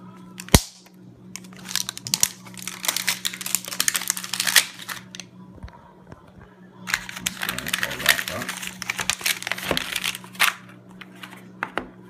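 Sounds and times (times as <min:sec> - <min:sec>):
paper crinkling: 0:01.4 - 0:05.2, 0:06.9 - 0:11.7.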